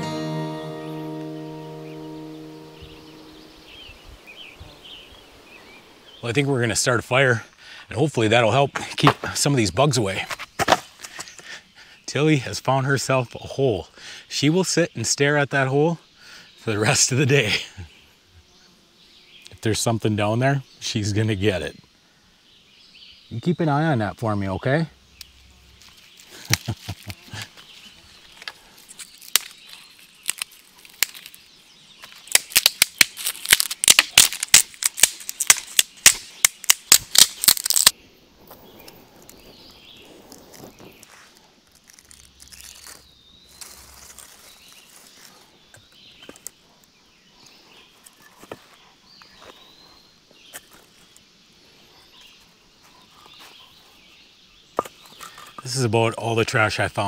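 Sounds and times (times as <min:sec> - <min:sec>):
dry sticks snapping: 0:25.2 - 0:27.6, 0:28.3 - 0:38.0, 0:40.5 - 0:46.6.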